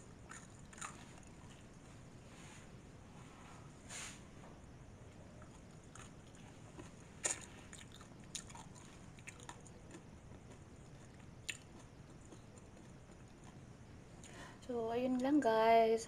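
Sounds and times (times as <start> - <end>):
person chewing sticky food: 0.2 - 1.6, 5.4 - 14.4
mouth clicks and smacks: 7.2 - 13.6.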